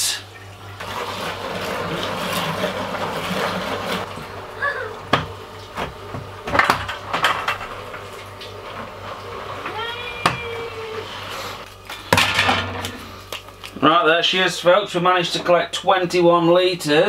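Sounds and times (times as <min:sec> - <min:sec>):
liquid sloshing in bucket: 0:00.4 - 0:04.2.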